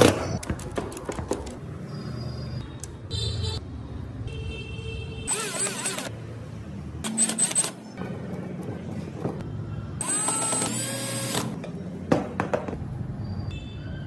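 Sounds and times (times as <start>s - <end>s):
cordless drill driving screws: 5.3s - 6.1s, 10.0s - 11.5s.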